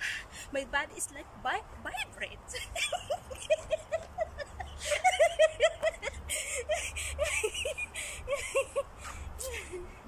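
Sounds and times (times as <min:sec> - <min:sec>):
women giggling and laughing: 0:02.5 - 0:10.0.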